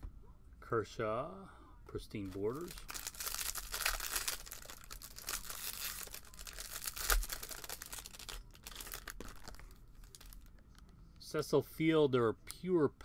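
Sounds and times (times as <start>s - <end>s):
foil wrapper tearing and crinkling: 2.3s - 10.5s.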